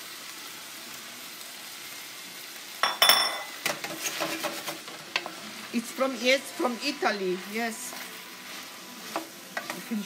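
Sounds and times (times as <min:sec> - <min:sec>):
vegetables sizzling in pan: 0:00.0 - 0:10.0
metallic clank with ring: 0:02.8 - 0:03.5
pan knocking and scraping: 0:02.8 - 0:05.3.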